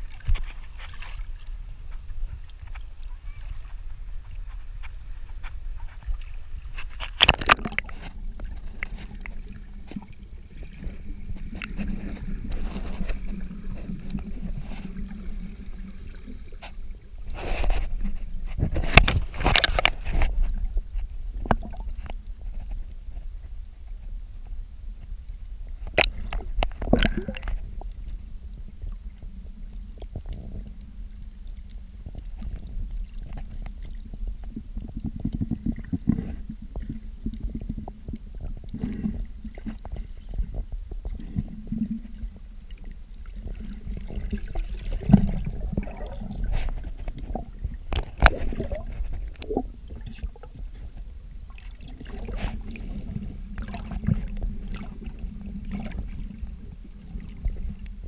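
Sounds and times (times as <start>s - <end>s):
underwater water rumble: 0.0s - 58.0s
underwater clicks and knocks: 3.7s - 15.2s, 16.2s - 22.9s, 25.8s - 28.0s, 32.0s - 58.0s.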